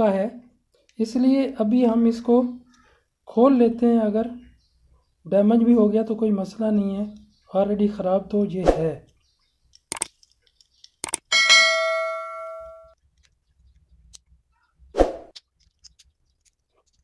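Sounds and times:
bell ding: 11.3s - 13.0s.

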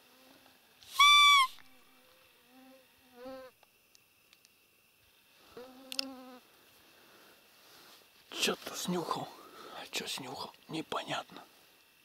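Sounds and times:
flying insects buzzing: 0.0s - 12.0s
high deer call squeak: 0.9s - 1.6s.

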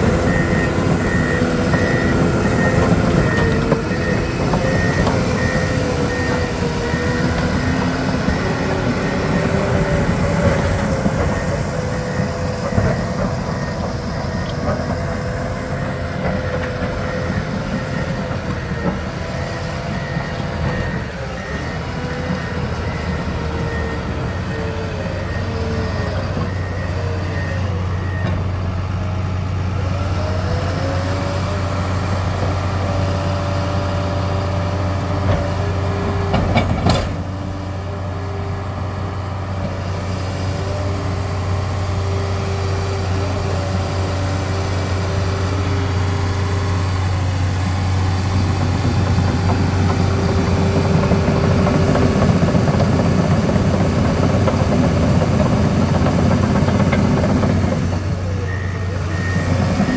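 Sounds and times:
reverse alarm beeping: 0.0s - 28.5s, 58.3s - 59.9s
bulldozer diesel engine: 0.0s - 59.9s
whining tracks and hydraulics: 0.0s - 59.9s.

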